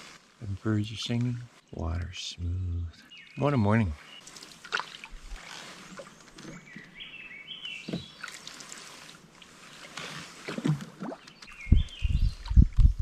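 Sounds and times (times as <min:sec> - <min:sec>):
songbird singing: 0:00.4 - 0:10.1, 0:10.9 - 0:13.0
paddle strokes in water: 0:04.2 - 0:12.7.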